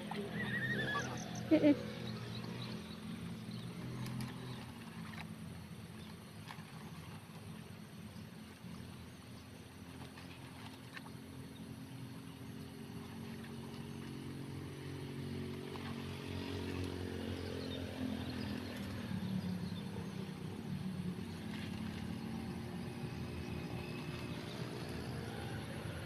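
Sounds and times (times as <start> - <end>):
small engine running: 0.0 - 5.8, 11.2 - 26.0.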